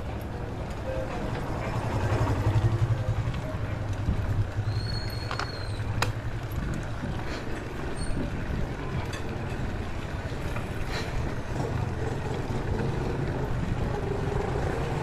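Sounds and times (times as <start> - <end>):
bike tyres rolling on concrete: 0.0 - 15.0
wind rush on microphone: 3.2 - 15.0.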